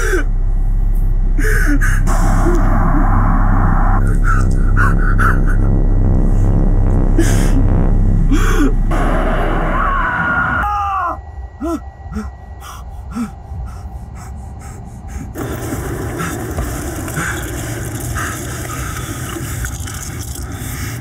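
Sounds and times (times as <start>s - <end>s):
low drone: 0.0s - 21.0s
man screaming: 9.8s - 11.2s.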